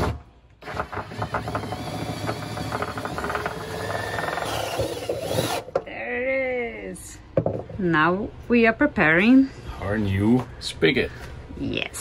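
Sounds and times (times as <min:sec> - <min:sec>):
cordless drill cutting under load: 0:00.6 - 0:05.7.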